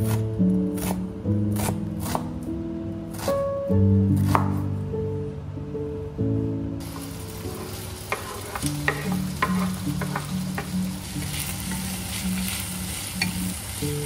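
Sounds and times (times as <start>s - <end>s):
food sizzling in a frying pan: 6.8s - 14.0s.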